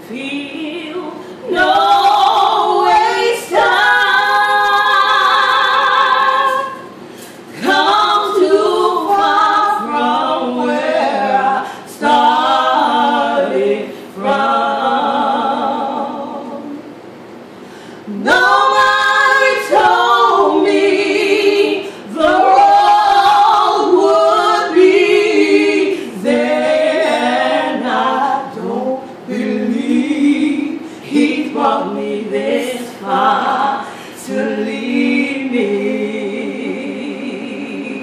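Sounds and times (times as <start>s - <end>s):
women singing a cappella: 0.0s - 38.0s.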